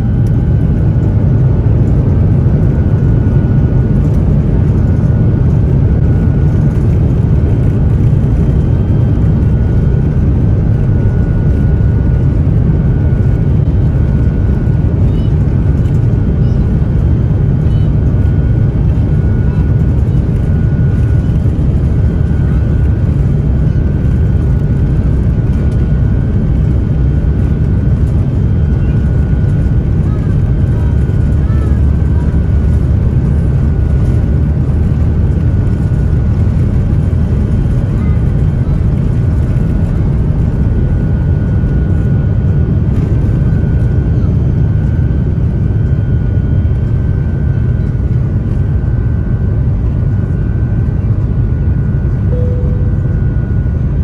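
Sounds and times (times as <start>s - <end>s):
jet engines deep rumble: 0.0s - 54.0s
faint high tone: 52.3s - 53.2s.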